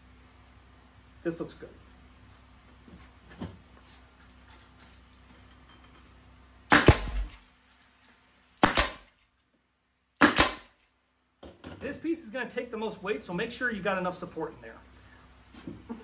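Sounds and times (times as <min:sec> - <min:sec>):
pneumatic nailer shots: 0:06.7 - 0:07.4, 0:08.6 - 0:09.2, 0:10.2 - 0:10.8.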